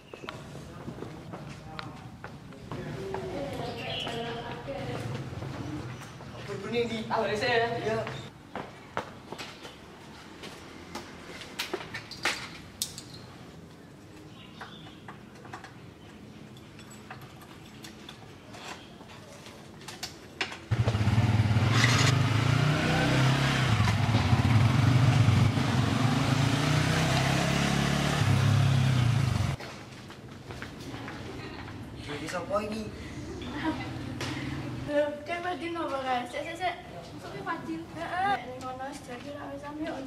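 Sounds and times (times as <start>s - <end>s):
motorcycle engine running: 20.7s - 29.6s.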